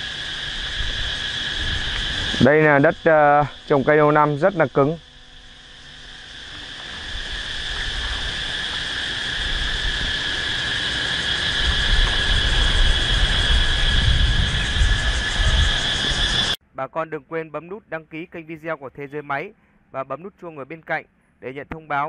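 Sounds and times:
insects chirring: 0.0s - 16.6s.

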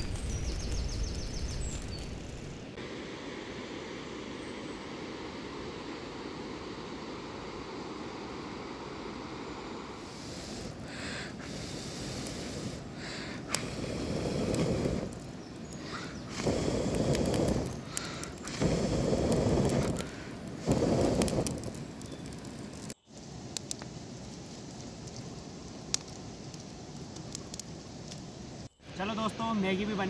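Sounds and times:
steady fire hiss: 0.0s - 30.0s
person blowing into fire: 9.9s - 23.0s
faint ticks: 10.2s - 24.0s.

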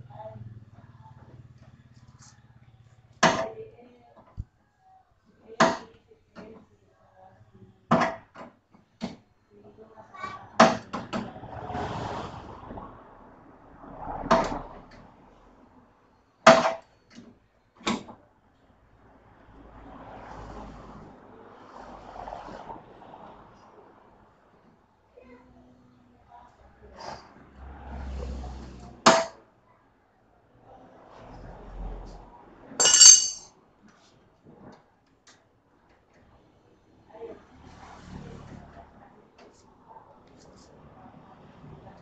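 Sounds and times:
clatter of parts: 32.8s - 33.5s
handling noise: 32.8s - 33.5s
metal clink on sheet steel: 32.8s - 33.5s.

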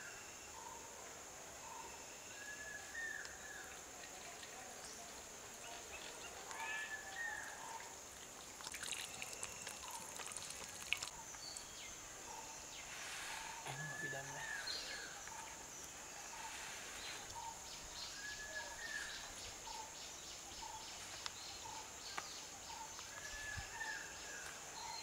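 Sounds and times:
high insect drone: 0.0s - 25.0s
birds calling: 8.8s - 25.0s.

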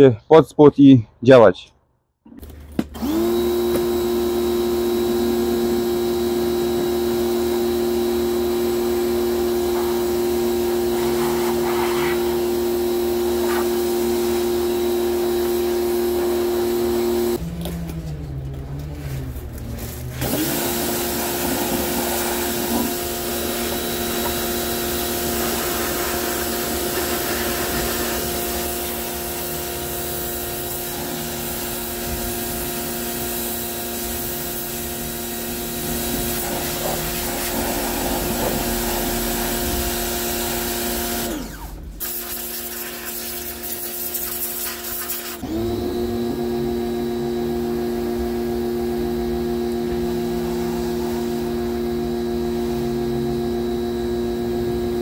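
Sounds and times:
pressure washer motor whining: 2.4s - 55.0s
water spray hissing: 10.7s - 12.5s, 20.5s - 32.2s, 35.8s - 39.5s, 42.0s - 45.4s.

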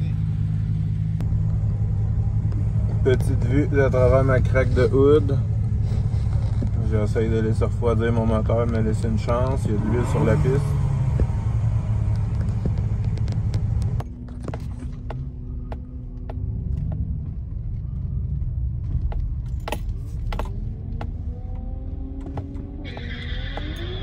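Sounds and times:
truck engine rumbling at idle: 0.0s - 9.7s
sharp clicks and light rattles: 12.0s - 17.9s.

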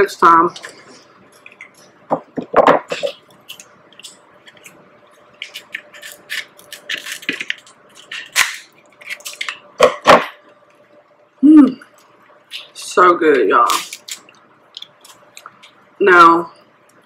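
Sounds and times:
crab shell cracking: 5.4s - 9.6s, 13.7s - 15.8s.

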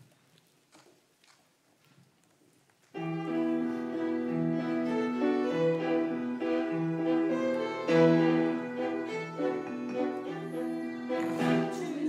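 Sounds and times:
violins and piano playing slowly: 2.9s - 12.0s.

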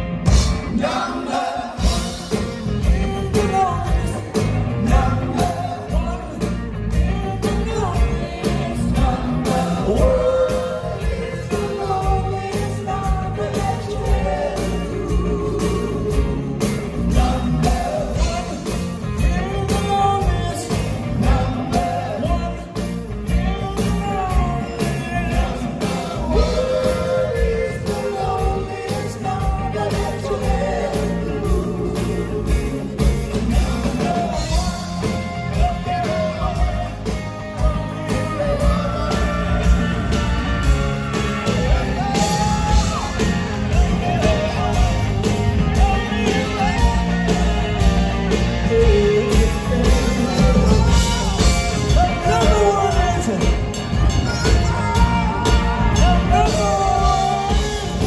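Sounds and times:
live rock band playing: 0.0s - 58.0s
men singing: 0.2s - 58.0s.

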